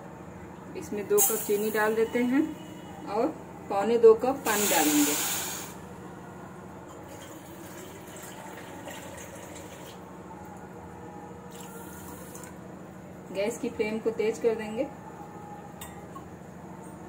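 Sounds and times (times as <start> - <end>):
faint steady hum: 0.0 - 17.0
water pouring into steel pan: 7.2 - 9.9.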